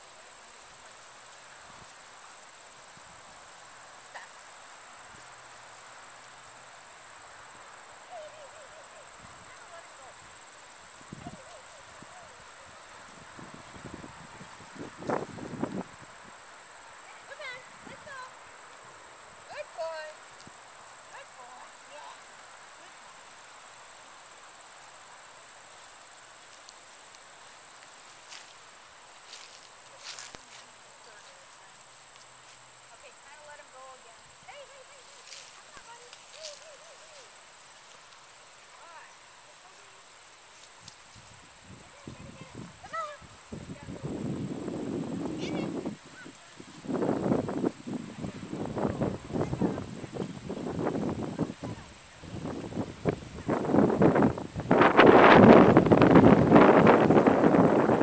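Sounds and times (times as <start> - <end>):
insects trilling: 0.0 - 58.0
soft rustles: 25.7 - 33.5, 34.5 - 43.7.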